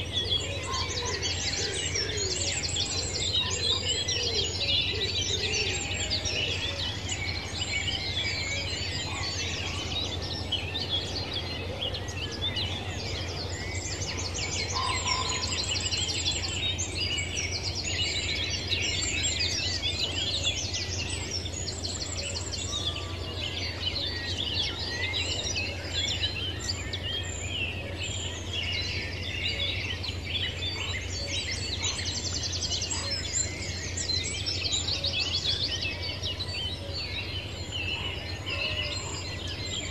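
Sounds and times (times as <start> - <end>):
birds chirping and singing: 0.0 - 39.9.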